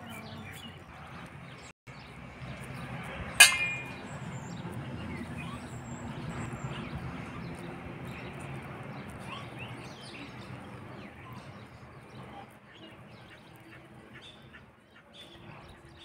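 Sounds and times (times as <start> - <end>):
dish clinking: 3.4 - 4.0.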